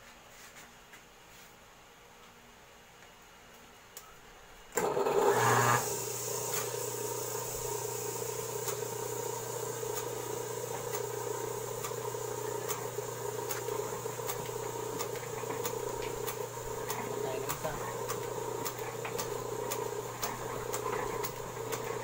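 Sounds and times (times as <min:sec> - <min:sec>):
electric motor humming: 0:04.8 - 0:22.0.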